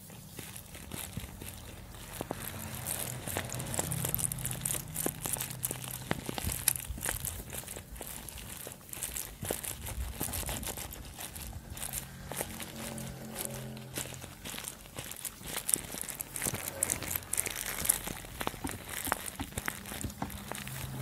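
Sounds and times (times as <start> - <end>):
animals chewing dry grass: 0.0 - 21.0.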